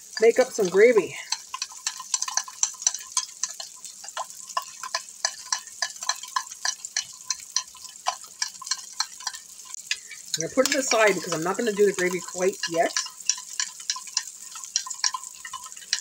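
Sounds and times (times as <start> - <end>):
meatballs sizzling in a pan: 0.0 - 16.0
spoon clinking in a mug: 1.2 - 16.0.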